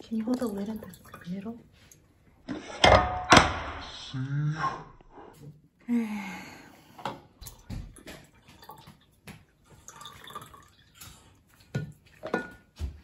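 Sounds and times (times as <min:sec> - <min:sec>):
juice pouring and dripping: 0:00.0 - 0:02.1, 0:07.4 - 0:12.9.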